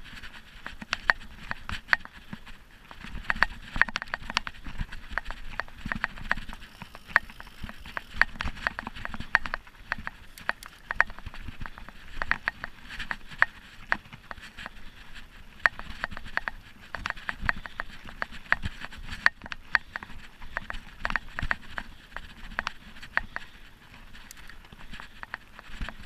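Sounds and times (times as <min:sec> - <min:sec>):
tyres rumbling on dirt trail: 0:00.0 - 0:26.0
bike parts clattering on bumps: 0:00.9 - 0:14.8.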